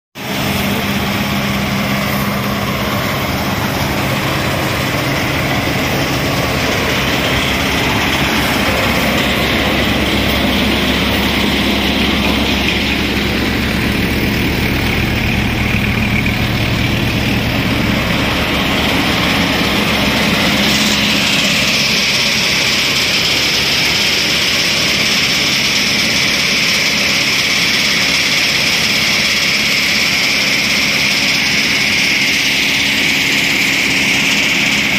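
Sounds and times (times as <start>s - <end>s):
threshing machinery whirring: 0.2s - 34.9s
tractor engine drone: 0.2s - 34.9s.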